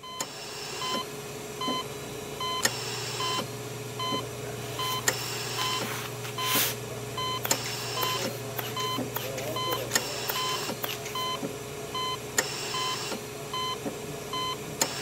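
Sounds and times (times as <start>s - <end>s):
short electronic beeps: 4.8s - 6.6s, 7.2s - 11.4s, 12.0s - 13.8s
electric hair clippers buzzing: 7.5s - 11.3s.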